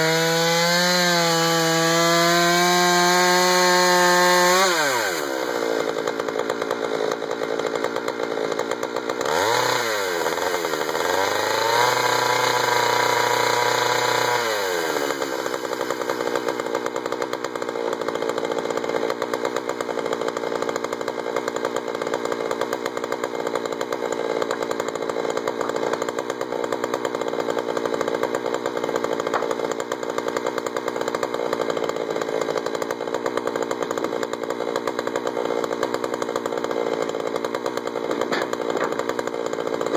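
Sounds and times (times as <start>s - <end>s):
chainsaw revving and idling: 0.0s - 39.9s.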